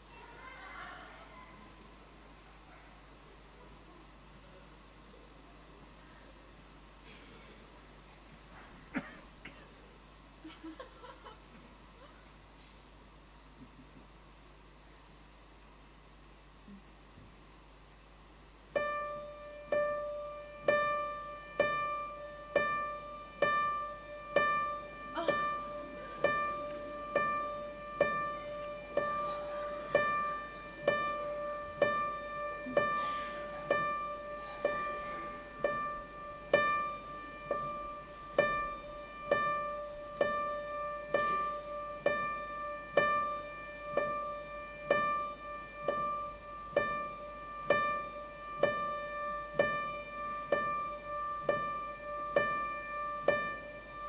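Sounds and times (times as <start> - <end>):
high piano note repeated: 18.8 - 54.0.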